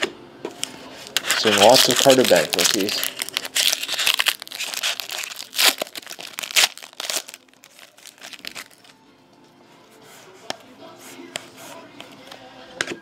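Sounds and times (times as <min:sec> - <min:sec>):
foil wrapper crinkling and tearing: 0:01.0 - 0:09.0.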